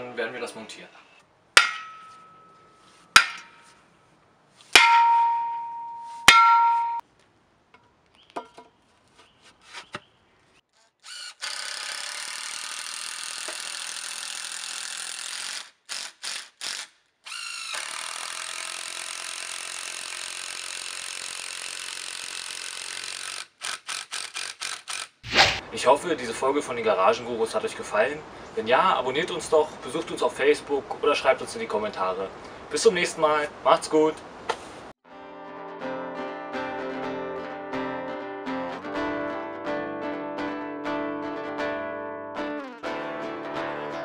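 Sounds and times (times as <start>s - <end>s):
hammer striking metal post: 1.6s - 3.8s, 4.8s - 7.0s
cordless drill driving screws: 11.0s - 25.2s.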